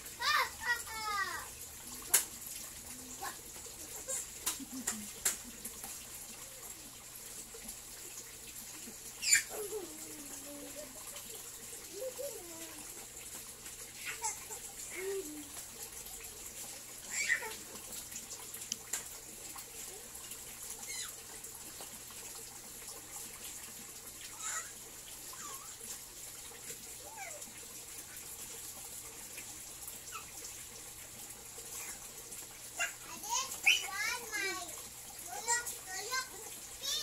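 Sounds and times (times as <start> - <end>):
water trickling: 0.0 - 37.0.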